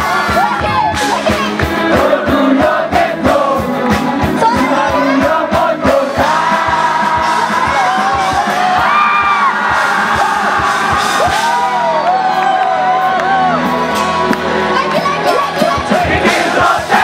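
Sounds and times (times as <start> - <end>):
person singing: 0.0 - 8.8
steady drum beat: 0.0 - 11.9, 15.0 - 17.0
electric guitars: 0.0 - 17.0.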